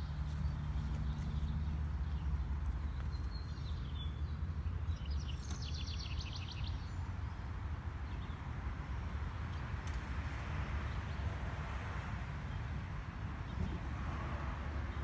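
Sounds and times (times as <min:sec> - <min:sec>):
bird chirp: 0:00.0 - 0:09.7.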